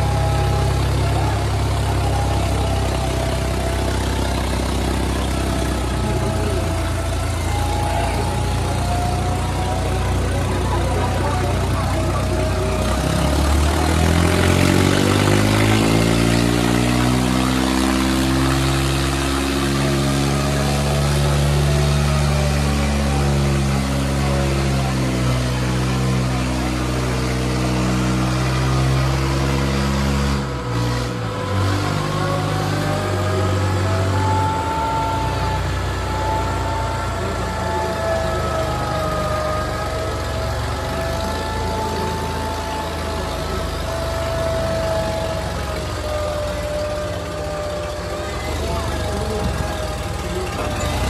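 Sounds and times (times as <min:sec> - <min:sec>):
tractor diesel engines under load: 0:00.0 - 0:51.0.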